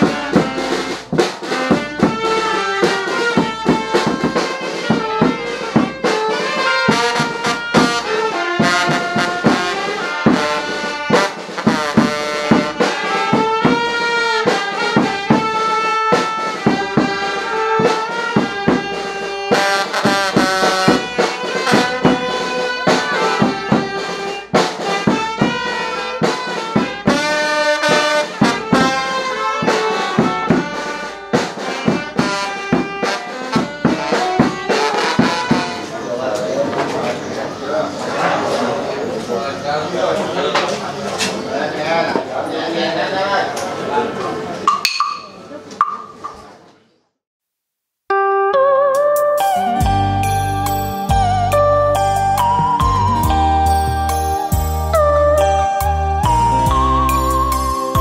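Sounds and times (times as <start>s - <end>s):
drum beat: 0.0s - 36.0s, 49.4s - 58.0s
trumpet and trombone melody: 0.0s - 36.1s, 48.1s - 58.0s.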